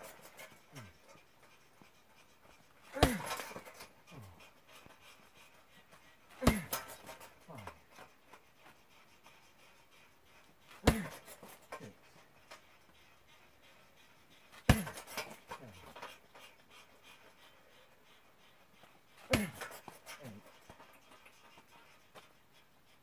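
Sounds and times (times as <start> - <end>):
punching bag kick smack: 3.0 - 3.6, 6.4 - 7.0, 10.8 - 11.2, 14.7 - 15.1, 19.3 - 19.7
swinging bag knock: 10.8 - 11.3, 14.7 - 15.1.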